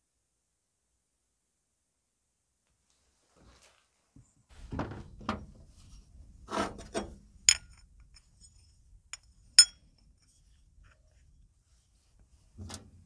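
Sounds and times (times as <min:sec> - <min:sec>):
sharp metallic clinks: 0:09.6 - 0:09.8.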